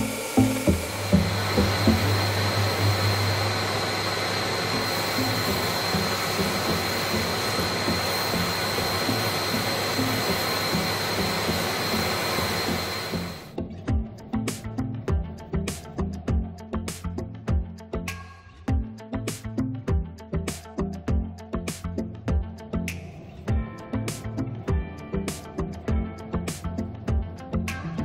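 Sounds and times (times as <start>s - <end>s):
orbital sander whining: 0.0s - 13.6s.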